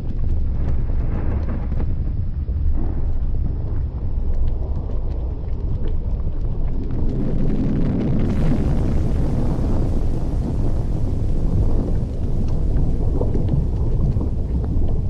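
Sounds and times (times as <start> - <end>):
deep volcanic rumble: 0.0 - 15.0
sharp crackles and pops: 0.0 - 15.0.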